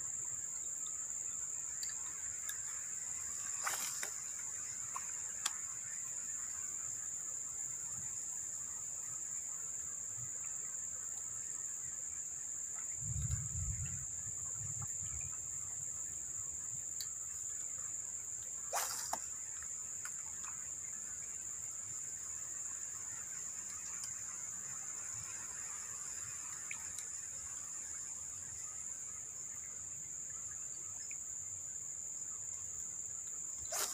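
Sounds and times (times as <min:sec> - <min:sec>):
insects droning: 0:00.0 - 0:33.9
low rumble of wind: 0:12.9 - 0:16.0
short sharp swish: 0:18.7 - 0:19.2.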